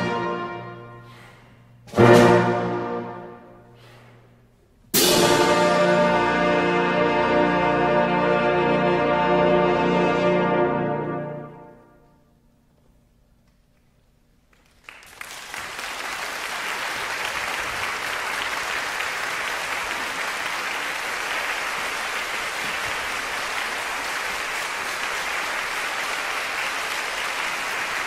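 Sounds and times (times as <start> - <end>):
audience applause: 14.5 - 28.0.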